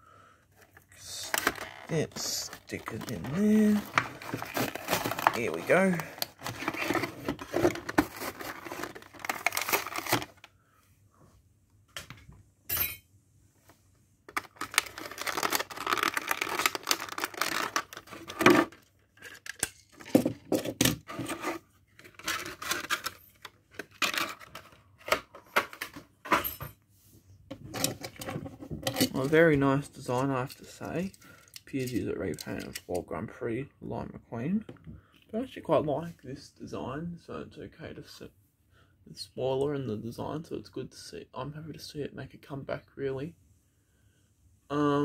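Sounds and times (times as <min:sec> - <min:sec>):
plastic packaging crinkling and tearing: 0:01.0 - 0:10.4, 0:14.3 - 0:19.7.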